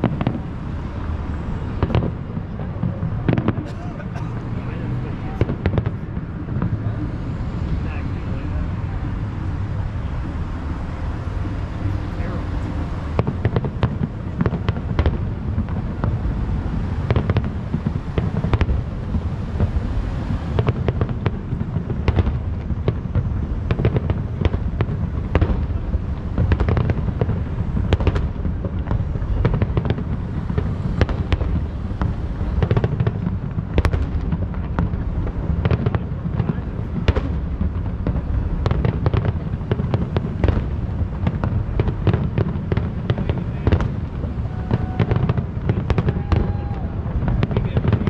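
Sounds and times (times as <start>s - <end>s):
low rumble: 4.5s - 47.6s
distant firework shells bursting: 12.2s - 46.5s.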